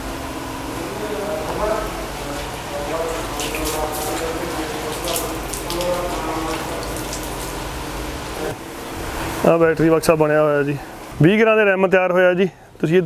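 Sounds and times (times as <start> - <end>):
water running: 0.0 - 11.6
hissing spray spurts: 0.9 - 9.4.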